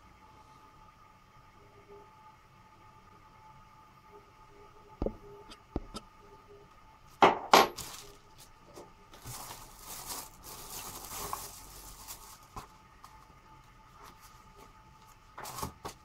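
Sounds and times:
plastic packaging crackling: 7.7s - 13.2s.

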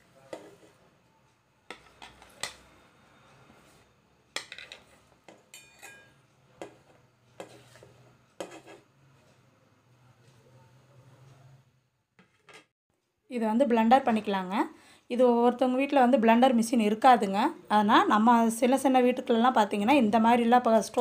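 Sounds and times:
metallic ring: 5.5s - 6.3s.

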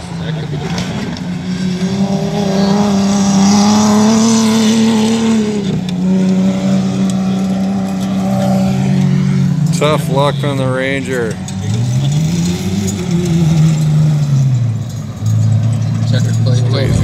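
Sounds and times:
race truck engine passing by: 11.3s - 17.0s.

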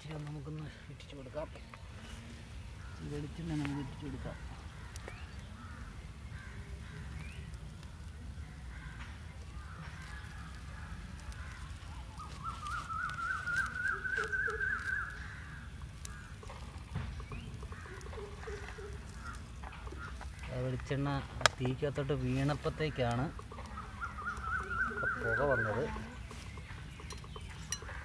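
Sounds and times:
grill crackling: 0.0s - 28.0s
bird calling rising notes: 11.4s - 20.5s, 22.2s - 28.0s.

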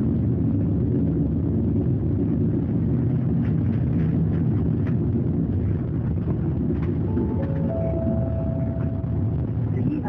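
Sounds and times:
diesel bus engine droning: 0.0s - 10.0s
road noise: 0.0s - 10.0s.

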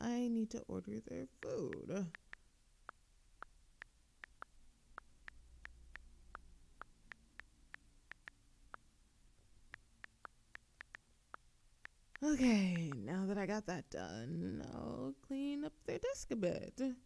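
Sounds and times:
typing taps on a phone: 1.7s - 8.8s.

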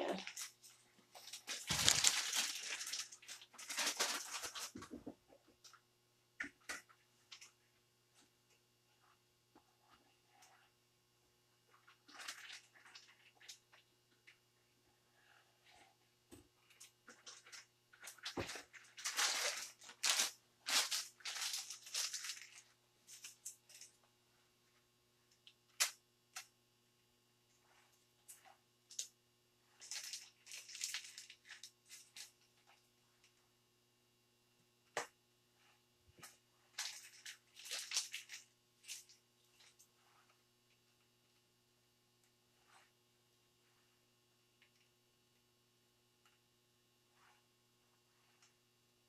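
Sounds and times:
plastic piping bag crinkling: 0.0s - 5.8s, 11.7s - 14.4s, 16.7s - 24.0s, 27.6s - 32.8s, 36.2s - 39.9s.

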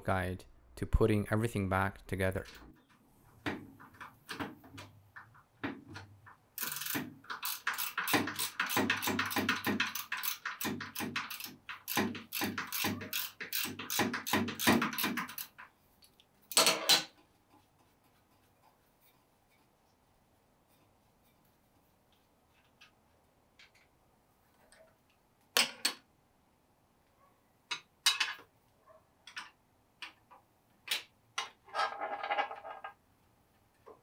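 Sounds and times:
ratchet wrench clicking: 6.6s - 15.6s.

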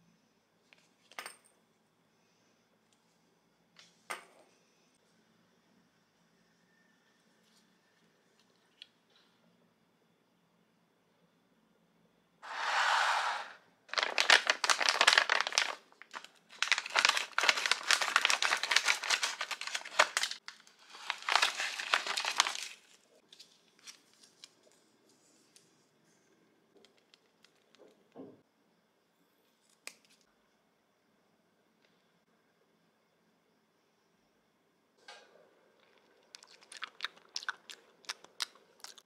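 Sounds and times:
plastic packaging crinkling: 13.9s - 24.7s, 36.3s - 39.0s.

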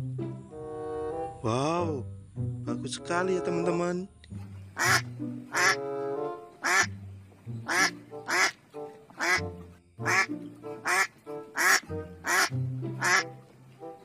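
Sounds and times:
background music with low notes: 0.0s - 14.0s
duck quacking: 4.6s - 8.6s, 9.2s - 13.4s.

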